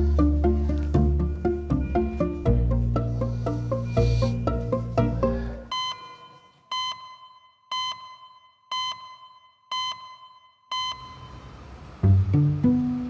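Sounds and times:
music: 0:00.0 - 0:05.7, 0:12.0 - 0:13.0
short electronic beeps: 0:05.7 - 0:11.5.

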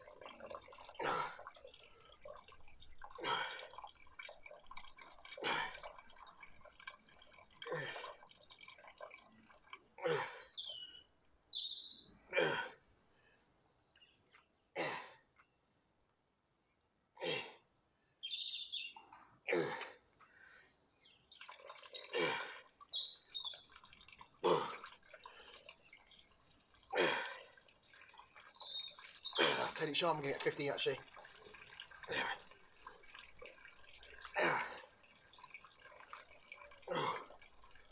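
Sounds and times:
small birds chirping: 0:00.0 - 0:05.2, 0:08.4 - 0:12.3, 0:13.7 - 0:14.6, 0:17.7 - 0:19.4, 0:20.2 - 0:24.3, 0:25.2 - 0:34.3, 0:35.0 - 0:37.9
hard exhales of effort: 0:03.2 - 0:03.6, 0:27.0 - 0:27.5.

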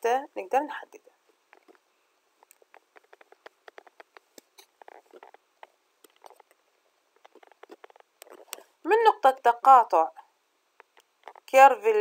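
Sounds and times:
faint small clicks and taps: 0:01.3 - 0:06.6, 0:07.2 - 0:08.7, 0:10.8 - 0:11.5.

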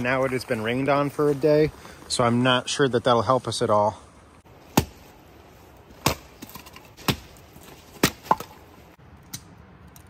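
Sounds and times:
hatchet chopping firewood: 0:04.5 - 0:09.5.

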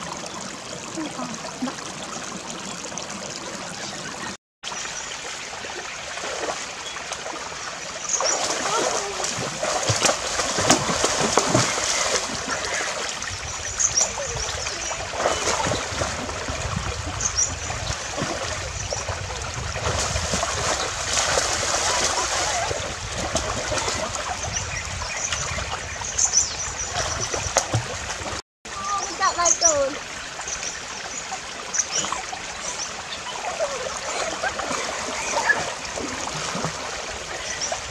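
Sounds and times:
water splashing and churning: 0:00.0 - 0:37.9.

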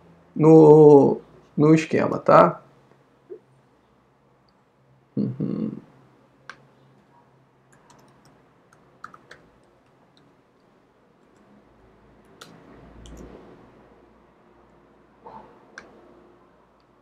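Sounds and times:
keyboard keys clicking: 0:07.7 - 0:10.3, 0:12.2 - 0:13.3.

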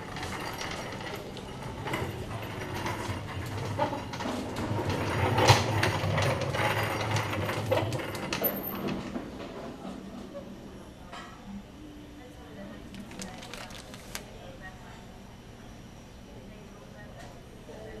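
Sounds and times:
cart wheels rumbling on hard floor: 0:00.0 - 0:09.6.

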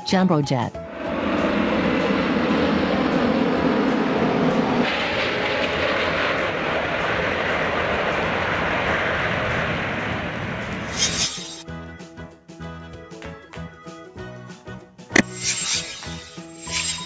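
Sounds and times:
jet engine roar: 0:00.8 - 0:11.6.

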